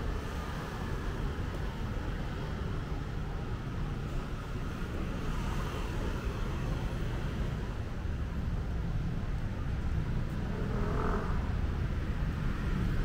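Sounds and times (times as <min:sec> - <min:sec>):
passing cars rumbling: 0:09.6 - 0:13.0.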